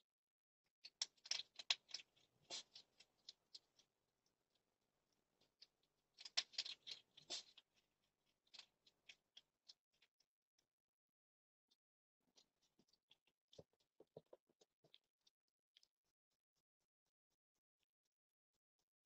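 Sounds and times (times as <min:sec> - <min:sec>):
hedgehog crunching dry food: 0:00.8 - 0:03.9, 0:05.4 - 0:07.9.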